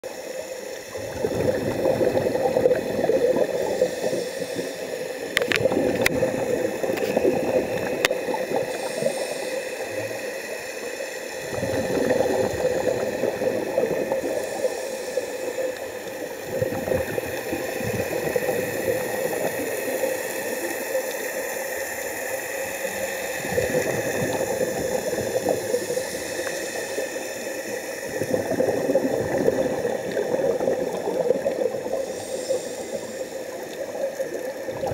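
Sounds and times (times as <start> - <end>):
regulator breathing with bubbles: 0.8 - 34.9.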